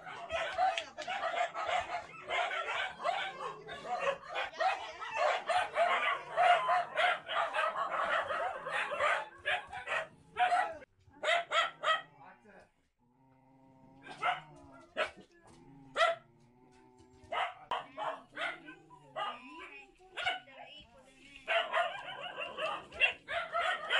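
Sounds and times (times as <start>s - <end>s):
dogs yipping and barking: 0.0s - 12.0s, 14.0s - 15.2s, 15.9s - 16.3s, 17.2s - 19.6s, 21.5s - 23.9s.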